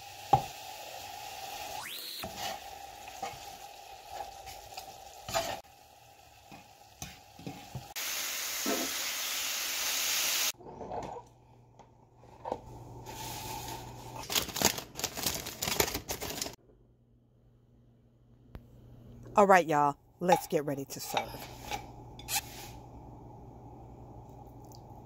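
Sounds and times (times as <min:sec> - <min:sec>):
meat sizzling in a skillet: 0:00.0 - 0:10.6
low steady hum: 0:16.6 - 0:25.0.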